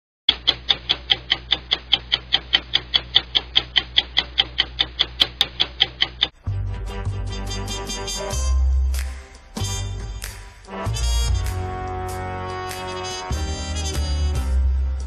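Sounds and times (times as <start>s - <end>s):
clock ticking: 0.3s - 6.4s
music: 6.4s - 15.0s.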